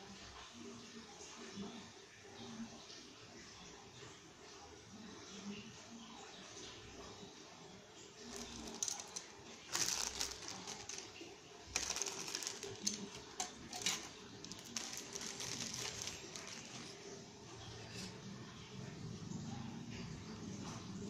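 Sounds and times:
plastic crinkling: 8.2 - 17.2
plastic parts clattering on a table: 8.3 - 17.0.

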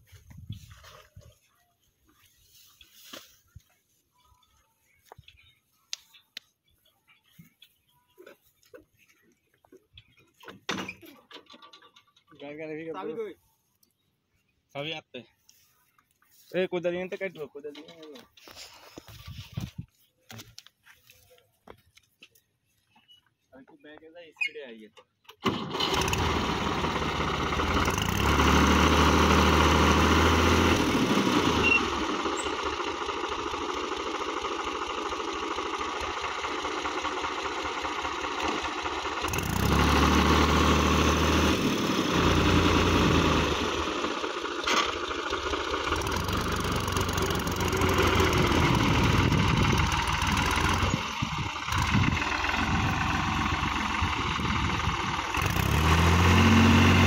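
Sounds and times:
tractor diesel engine revving: 25.4 - 57.0.

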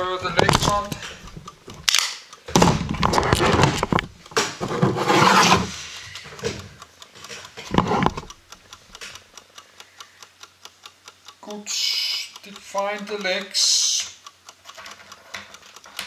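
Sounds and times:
rubbing and scraping handling noise: 2.9 - 6.0, 7.6 - 8.3.

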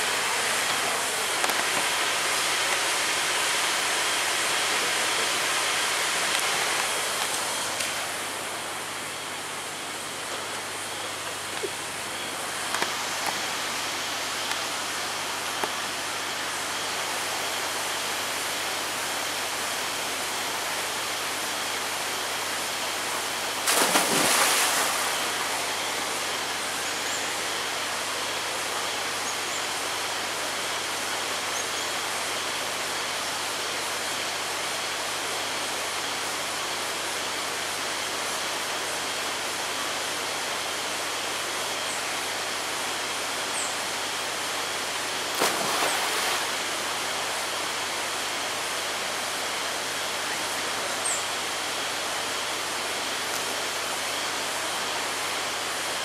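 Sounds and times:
flowing water rushing: 0.0 - 29.2, 43.4 - 56.0.

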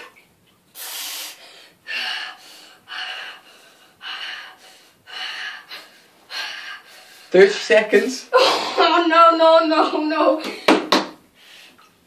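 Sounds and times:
boy gasping sharp breaths: 0.8 - 7.4.

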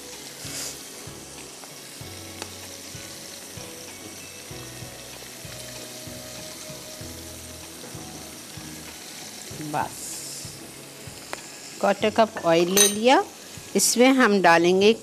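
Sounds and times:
oil sizzling with frying chicken: 0.0 - 15.0
ladle clinking: 12.4 - 13.2.

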